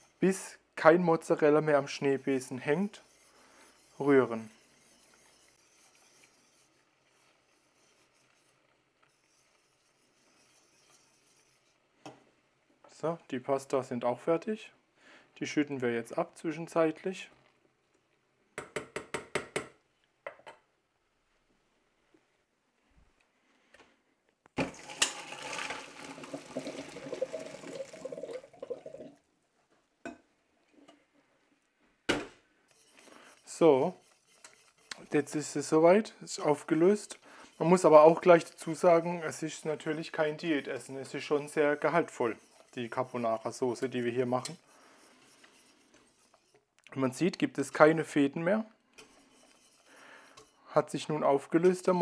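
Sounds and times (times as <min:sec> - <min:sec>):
whisk scraping a metal pot: 0:00.0 - 0:11.9, 0:24.7 - 0:28.8, 0:32.7 - 0:48.4, 0:49.0 - 0:52.0
water pouring into a colander: 0:24.6 - 0:29.2.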